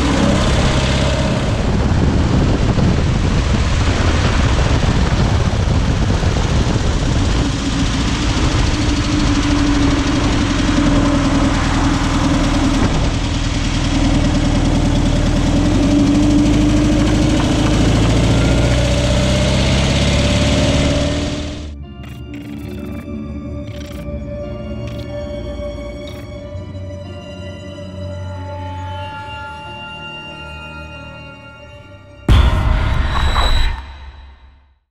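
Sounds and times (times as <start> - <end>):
tyre and road noise: 0.0 - 23.0
van engine running: 0.0 - 26.3.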